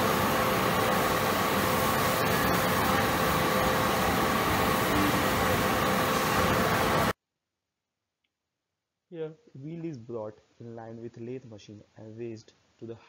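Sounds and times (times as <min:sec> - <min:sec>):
machinery running: 0:00.0 - 0:07.2
steady whine: 0:00.0 - 0:07.2.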